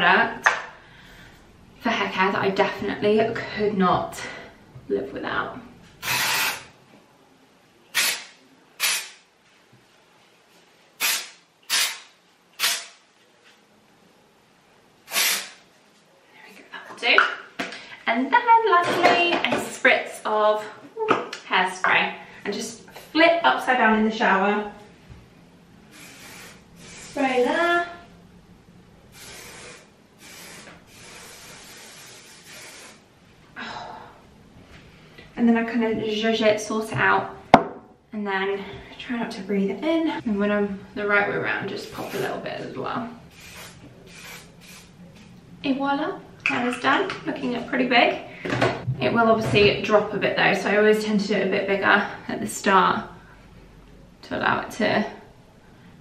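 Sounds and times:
aerosol spray hissing: 6.0s - 6.7s, 15.1s - 15.6s, 25.9s - 27.4s, 29.1s - 33.0s, 43.3s - 44.9s.

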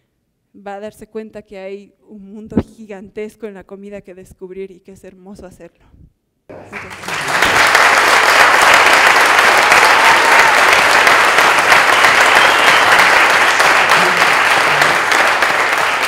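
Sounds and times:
audience applauding: 6.5s - 16.0s.

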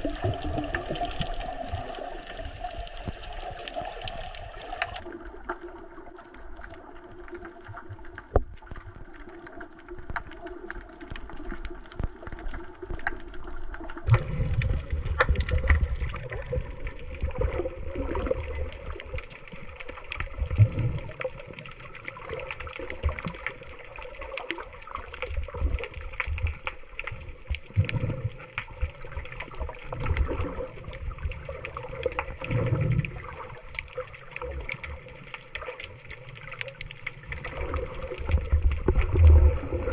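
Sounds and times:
underwater hiss: 0.0s - 5.0s
underwater clicks: 0.0s - 5.1s, 9.9s - 39.9s
muffled water rumbles: 0.0s - 39.9s.

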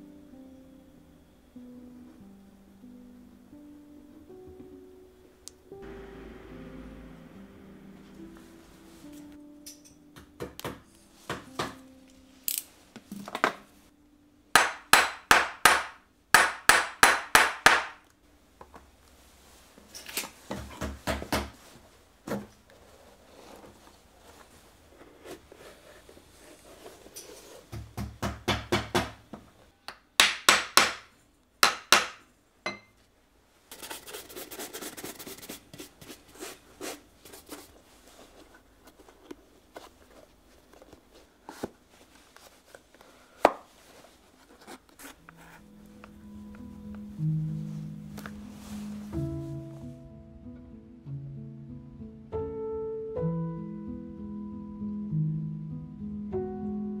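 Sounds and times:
hammer striking: 14.6s - 18.0s, 29.9s - 32.9s.

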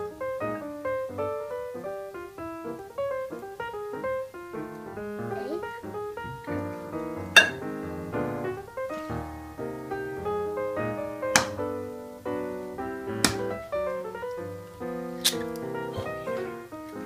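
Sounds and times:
piano music: 0.0s - 17.0s
sharp taps: 13.2s - 13.6s.

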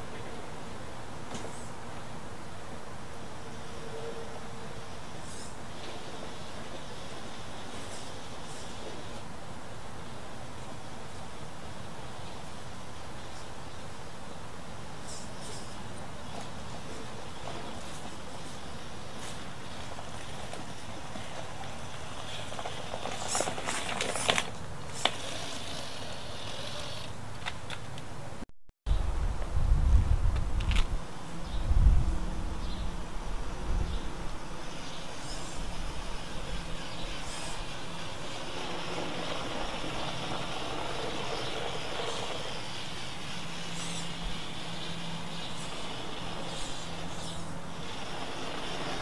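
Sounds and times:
toy car motor running: 5.1s - 9.2s, 18.0s - 27.2s, 34.6s - 49.0s
tyre noise on pavement: 15.4s - 28.3s, 33.8s - 49.0s
stones crunching under tyres: 17.5s - 28.0s.

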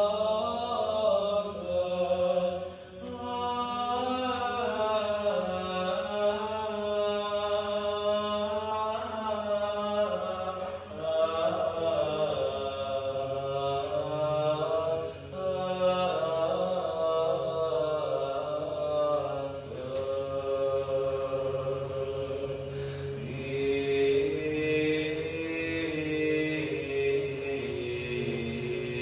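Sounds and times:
slow sung chant: 0.0s - 29.0s
steady low drone: 17.8s - 29.0s.

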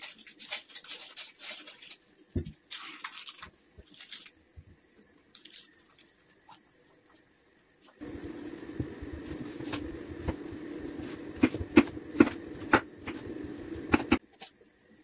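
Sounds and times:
low rushing hum: 8.0s - 14.2s.

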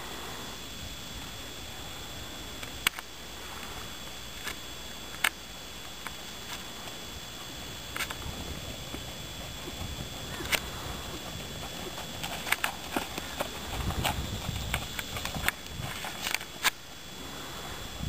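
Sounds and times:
sharp clicks: 4.4s - 7.0s
horse hoofbeats on sand: 8.3s - 16.2s.

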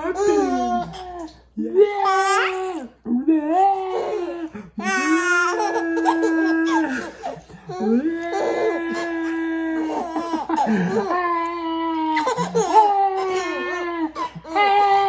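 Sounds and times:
baby squealing laughs: 12.0s - 14.6s.

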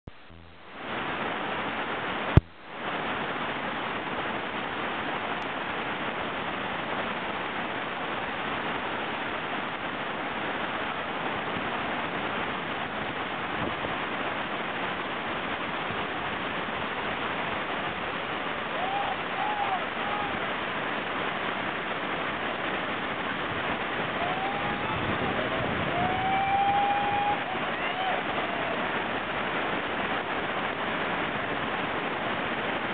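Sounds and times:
whitewater rushing over boulders: 0.8s - 32.9s
short high calls: 18.7s - 20.4s, 24.0s - 28.9s.

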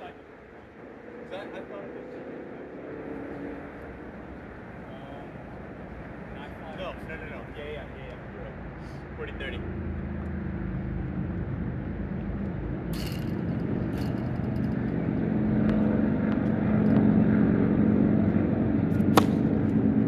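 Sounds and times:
low engine drone: 0.0s - 20.0s
tennis racket hitting ball: 18.9s - 19.7s.

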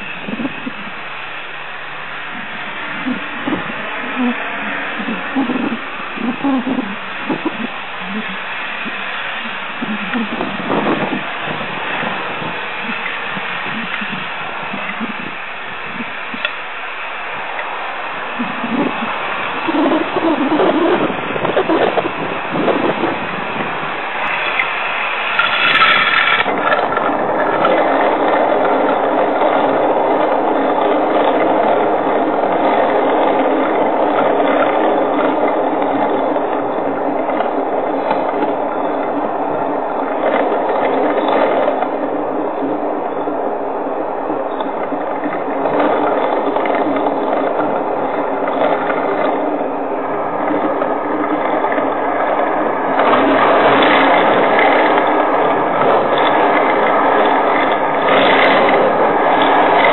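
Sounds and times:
dense rattling crackle: 0.0s - 59.9s
heavy rain: 0.0s - 59.9s
storm wind: 0.0s - 59.9s.

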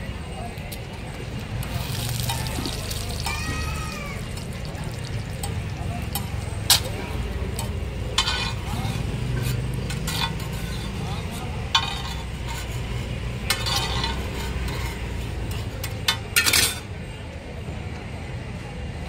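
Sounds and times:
eggs frying: 0.8s - 6.4s
spatula clinking on iron griddle: 5.4s - 12.7s, 13.5s - 16.8s.

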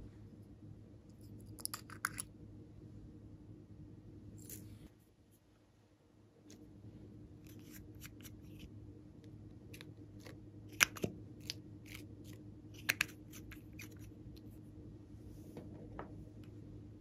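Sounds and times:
plastic cap snapping: 10.8s - 11.6s, 12.8s - 14.0s.

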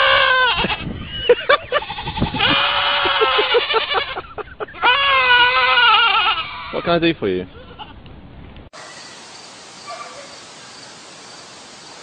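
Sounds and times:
goats bleating: 1.7s - 6.9s.

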